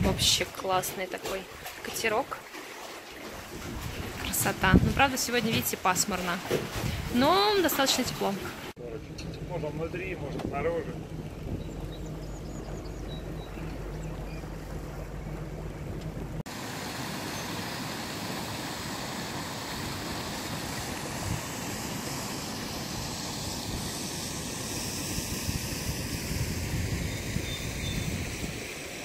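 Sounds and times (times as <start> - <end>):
wind and moving water rushing: 0.0 - 29.0
motorboat engine idling: 8.8 - 16.4.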